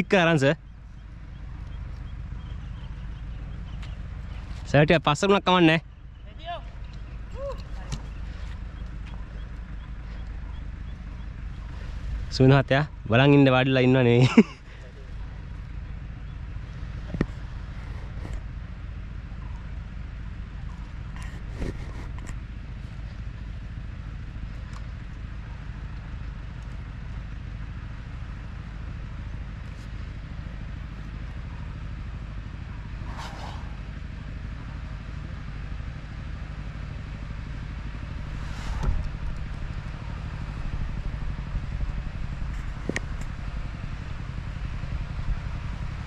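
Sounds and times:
wind rumble on microphone: 0:14.9 - 0:27.9, 0:37.1 - 0:46.0.

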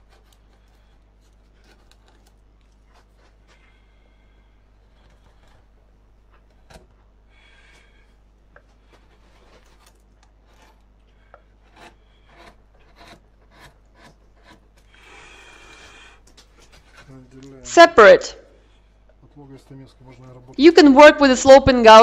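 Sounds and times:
carving gouge scraping wood: 0:00.0 - 0:06.8, 0:08.6 - 0:17.2
steady low hum: 0:00.0 - 0:22.0.

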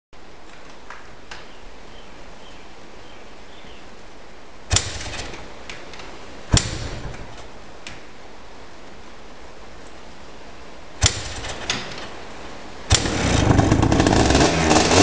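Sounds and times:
steady hiss: 0:00.2 - 0:14.2
sharp knocks: 0:06.5 - 0:07.5.

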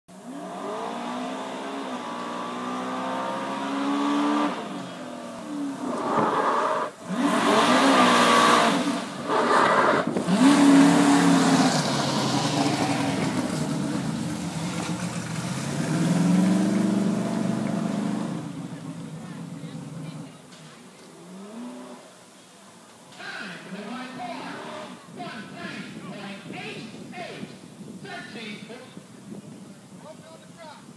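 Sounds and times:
truck engine revving: 0:00.2 - 0:20.3.

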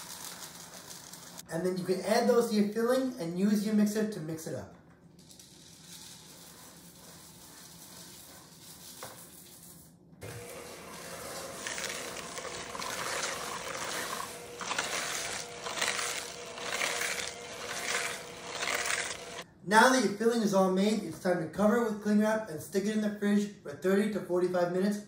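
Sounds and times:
whisk swishing in a bowl: 0:05.9 - 0:19.4
electric hand mixer humming: 0:10.2 - 0:19.4.

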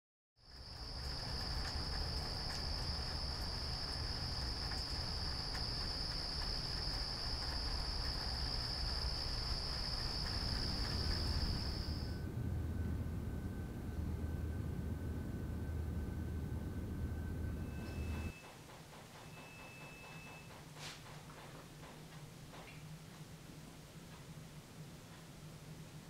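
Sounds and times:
crickets trilling: 0:00.4 - 0:12.3, 0:17.6 - 0:18.4
low rumble: 0:07.4 - 0:18.3.

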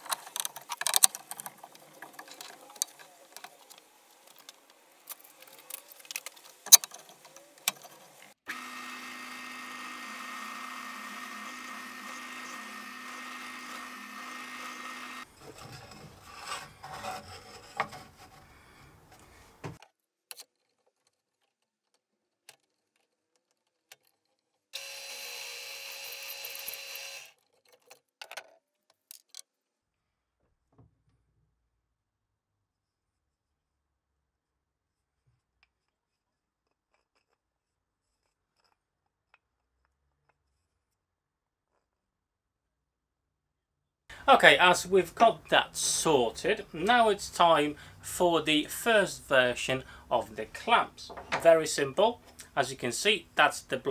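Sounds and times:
drill press drilling wood: 0:08.5 - 0:15.6, 0:24.8 - 0:27.3
clicks and knocks of clamps: 0:51.1 - 0:51.5.

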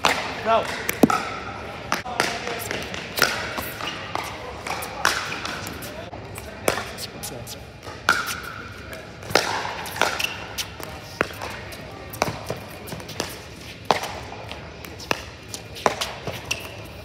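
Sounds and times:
paddles hitting plastic ball: 0:00.0 - 0:05.8.

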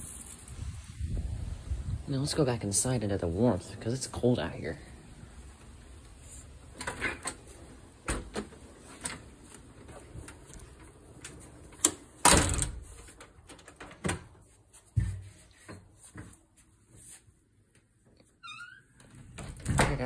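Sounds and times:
wind rumble on microphone: 0:00.0 - 0:03.8
door knocks and clunks: 0:08.0 - 0:08.6, 0:12.2 - 0:12.9, 0:19.2 - 0:20.0.

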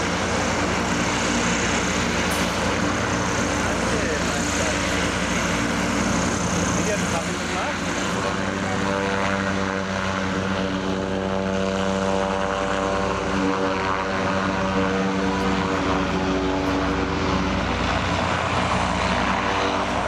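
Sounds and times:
airship propeller engines droning: 0:00.0 - 0:20.0.

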